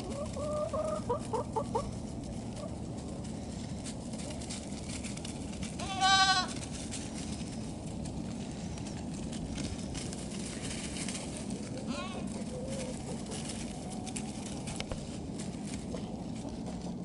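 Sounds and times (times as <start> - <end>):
goat kid bleating: 5.8 - 6.7, 11.8 - 12.4.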